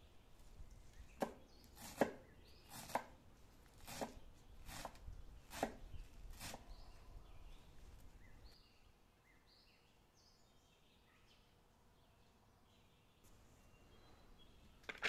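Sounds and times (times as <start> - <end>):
knife chopping on cutting board: 1.2 - 3.1, 3.8 - 5.8.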